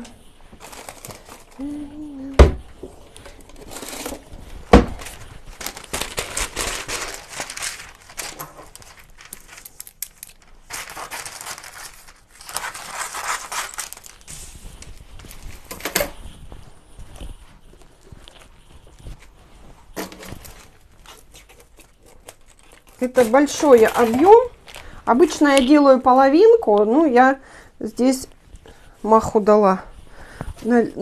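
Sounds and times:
paper crinkling and tearing: 0.5 - 2.2, 3.1 - 16.3, 20.0 - 25.8.

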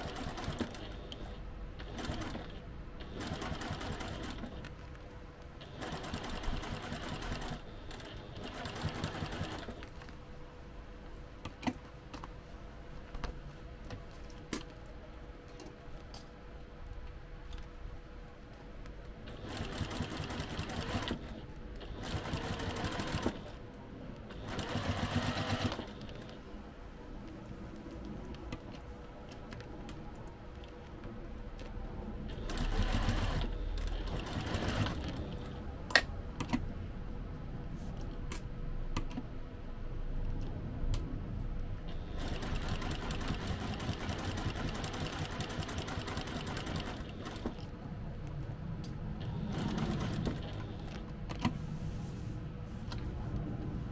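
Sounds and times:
sewing machine stitching fabric: 0.0 - 4.8, 5.6 - 10.1, 19.2 - 23.6, 24.3 - 26.4, 32.3 - 35.6, 41.9 - 47.7, 49.2 - 51.0.

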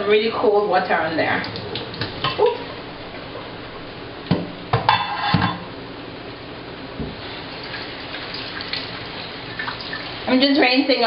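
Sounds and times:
metal pot clanking: 4.8 - 5.6.

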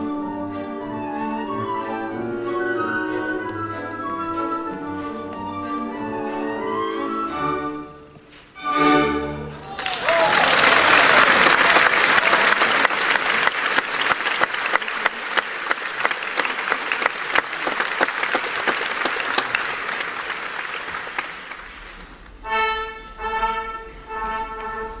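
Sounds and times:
orchestra playing held notes: 0.0 - 18.1, 21.0 - 25.0
audience applauding: 9.6 - 22.0.

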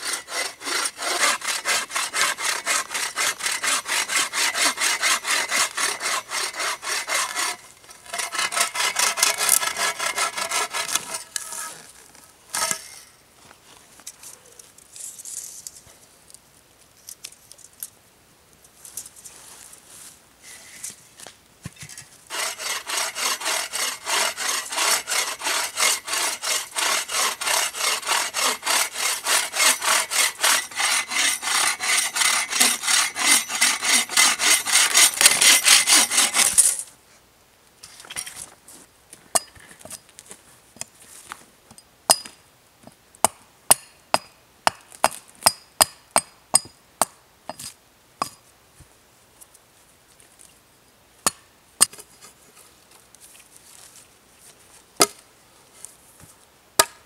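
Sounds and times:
hand saw cutting log: 0.0 - 11.8, 22.3 - 36.8
hatchet striking wood: 43.2 - 47.2, 56.8 - 57.0.

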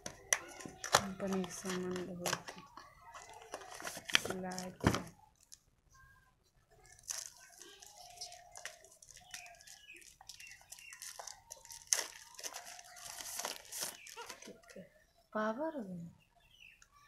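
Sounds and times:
plastic crinkling and tearing: 0.0 - 5.6, 6.8 - 14.7.

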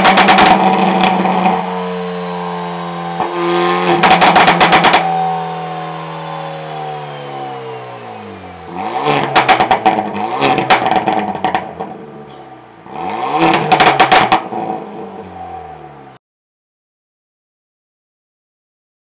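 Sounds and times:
loud exhaust pops and crackles: 0.0 - 1.7, 3.2 - 5.1, 9.0 - 14.7
car engine revs falling: 0.0 - 16.2.

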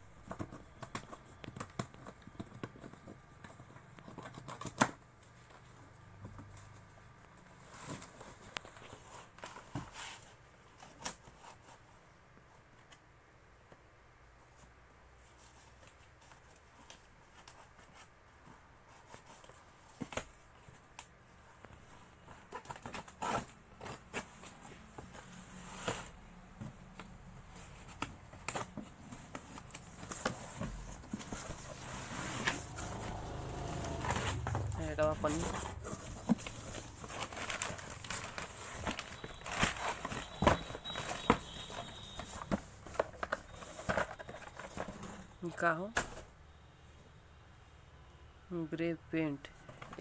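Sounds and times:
packing rustles and scrapes: 7.5 - 12.0, 14.6 - 46.4.

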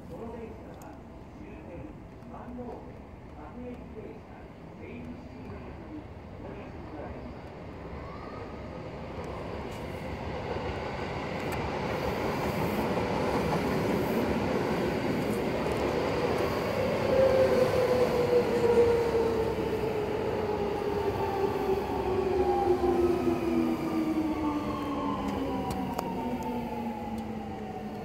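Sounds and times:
electric train passing: 6.0 - 28.0.

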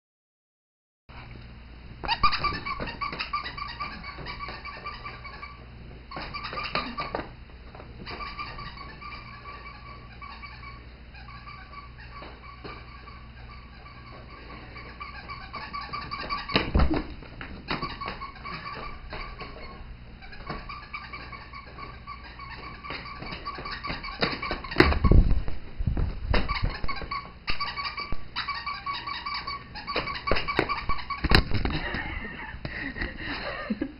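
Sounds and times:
squeaky toy squeaking: 2.0 - 7.2, 8.0 - 25.2, 26.4 - 31.6.

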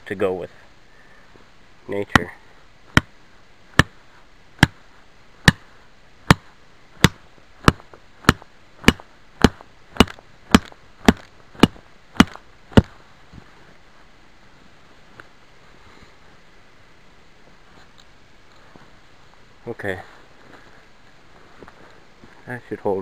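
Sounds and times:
hatchet knocking wooden stake: 2.9 - 3.1, 3.8 - 4.0, 5.4 - 5.6, 6.3 - 12.9.

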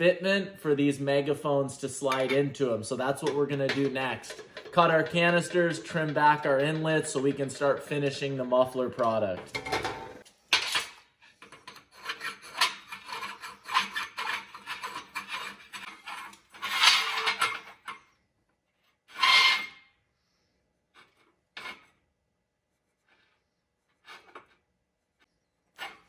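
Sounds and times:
metal scraping on steel workbench: 11.4 - 17.9, 19.0 - 19.9, 23.0 - 24.6.

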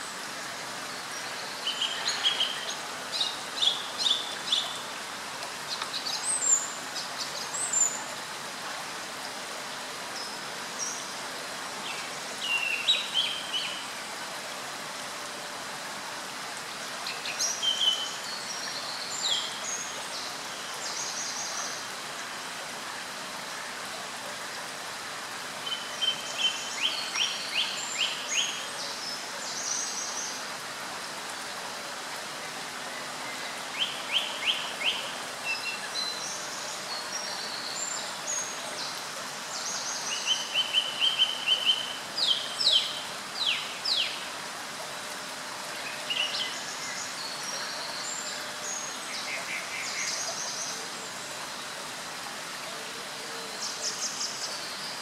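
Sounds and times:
stream flowing: 0.0 - 55.0
songbirds chirping and trilling: 32.4 - 44.4.

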